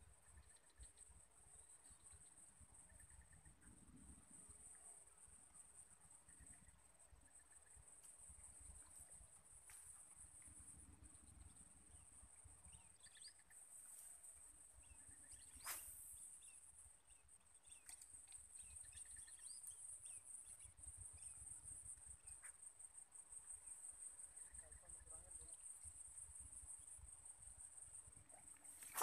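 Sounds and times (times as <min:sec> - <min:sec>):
bird chirps: 0:11.2 - 0:14.1, 0:14.8 - 0:21.6.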